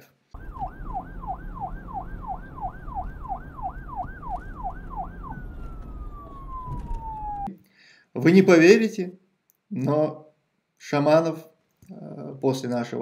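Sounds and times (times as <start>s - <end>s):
low rumble: 0.4s - 7.5s
siren wailing: 0.4s - 7.5s.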